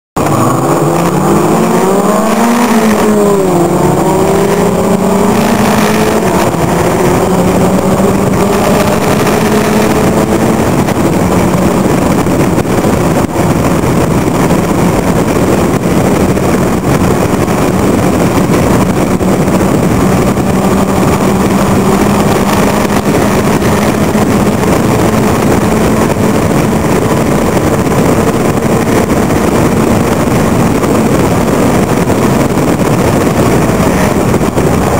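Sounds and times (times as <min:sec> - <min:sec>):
racing car engine revving: 0:00.2 - 0:34.9
wind rush: 0:00.2 - 0:34.9.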